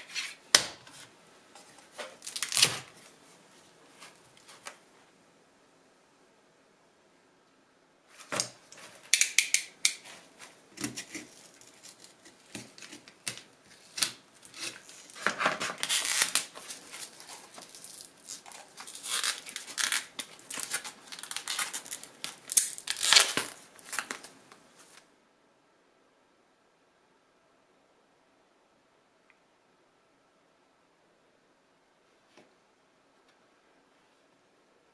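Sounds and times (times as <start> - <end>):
cardboard and tape ripping: 1.9 - 3.1, 10.0 - 25.0.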